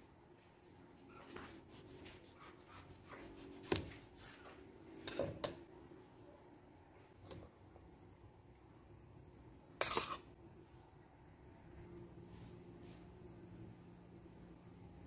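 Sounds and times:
knife slicing tomatoes: 1.3s - 4.4s.

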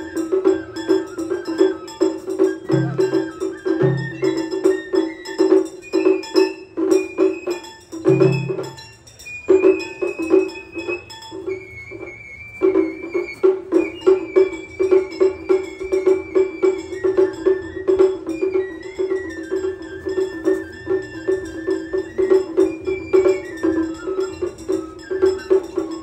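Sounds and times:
deep drum beats: 0.0s - 9.0s
bamboo flute melody: 0.0s - 26.0s
quick drum strokes: 0.0s - 26.0s.

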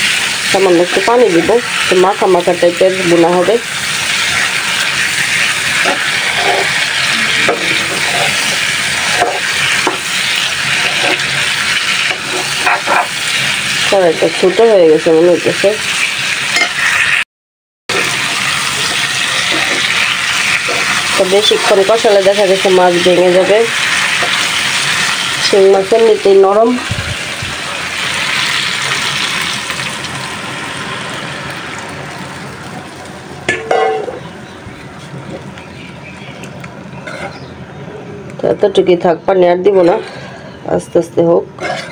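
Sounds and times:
fish sizzling in a frying pan: 0.0s - 17.2s, 17.9s - 34.6s
spatula scraping and knocking pan: 5.4s - 13.2s, 18.8s - 22.0s
water poured into pan: 17.9s - 21.1s.

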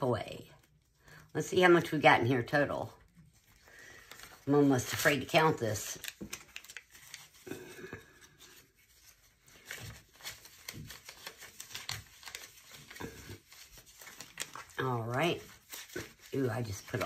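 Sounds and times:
banknotes rustling: 0.4s - 17.0s
plastic pouch crinkling: 3.0s - 17.0s.

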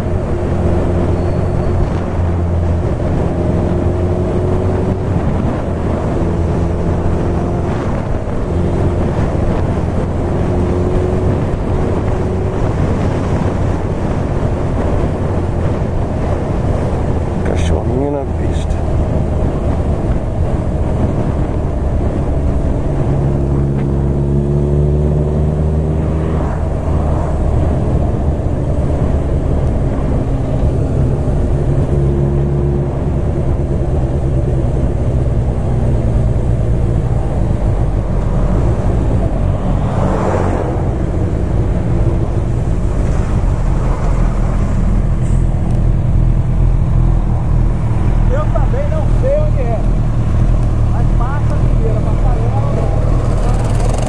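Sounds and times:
motorcycle engine running: 46.4s - 54.0s.

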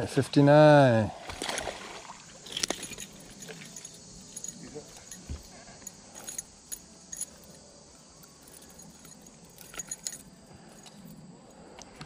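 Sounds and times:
metallic jingling of fishing lure: 2.4s - 11.3s.

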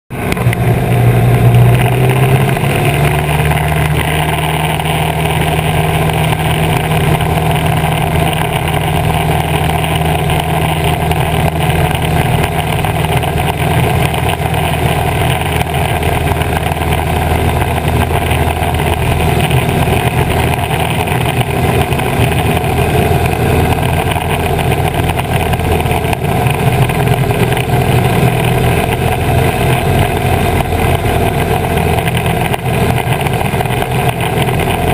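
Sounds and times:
plane engine and propeller drone: 0.1s - 34.9s
wind on microphone: 0.2s - 34.9s.

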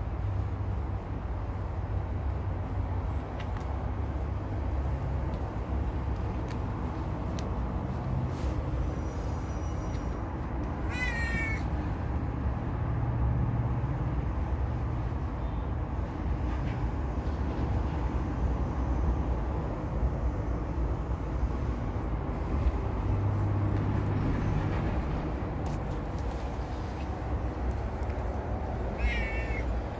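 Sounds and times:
cat meowing: 10.8s - 11.7s, 28.7s - 29.9s.

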